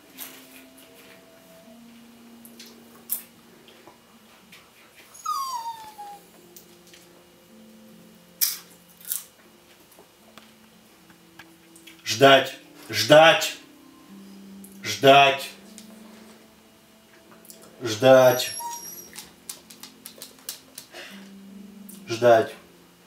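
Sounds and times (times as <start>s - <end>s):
dog whining: 5.1s - 6.4s, 18.2s - 19.4s.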